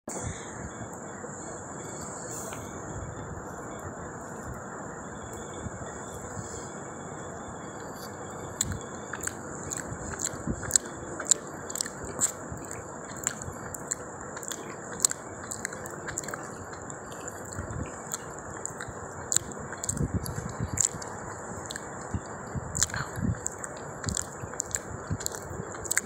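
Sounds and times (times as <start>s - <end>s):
high-pitched whine: 0.1s - 26.0s
fingers mixing rice: 8.6s - 26.0s.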